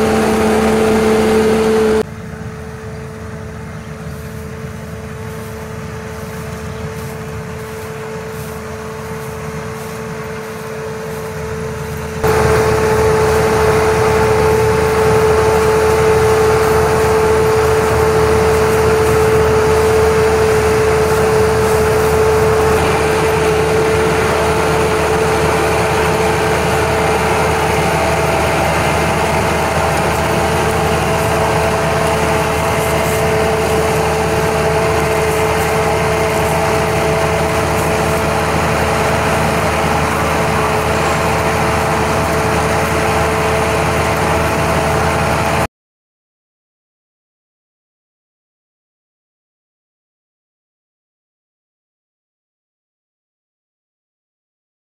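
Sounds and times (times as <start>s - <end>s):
combine harvester running: 0.0s - 45.7s.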